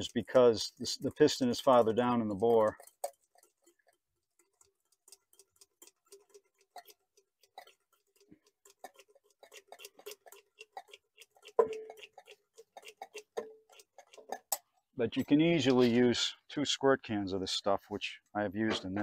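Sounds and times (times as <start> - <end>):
oil can pump clicks: 0.0 - 14.8.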